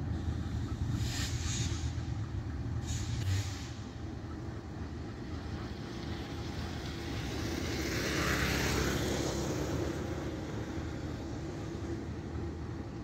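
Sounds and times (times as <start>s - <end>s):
diesel locomotives rumbling: 0.0s - 13.0s
air hiss: 1.0s - 2.2s, 2.8s - 3.9s.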